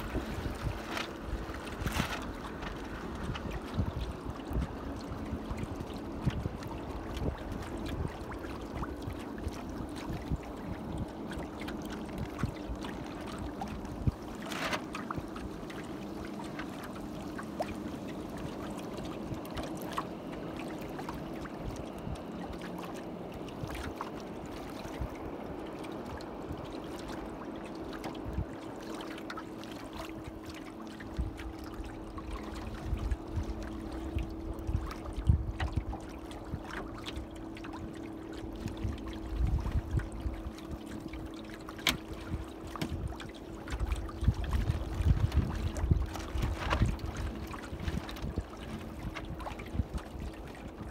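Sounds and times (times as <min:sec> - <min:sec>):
faint steady hum: 0:00.0 - 0:50.9
water splashing along hull: 0:00.0 - 0:50.9.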